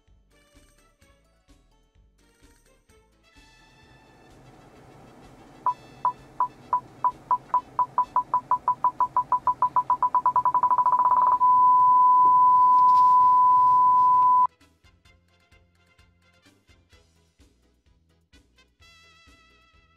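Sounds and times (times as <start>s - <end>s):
parking sensor beeping: 3.8s - 14.5s.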